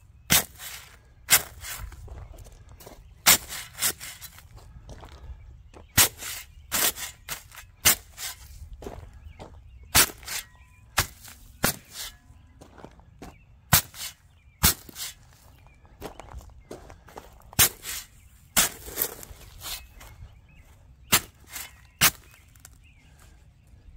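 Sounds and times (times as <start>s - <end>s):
shovel striking paper bags: 0.3s - 1.9s, 3.2s - 4.4s, 10.0s - 10.4s, 11.0s - 12.1s, 17.6s - 19.9s, 21.1s - 22.7s
light crunches: 0.4s - 23.4s.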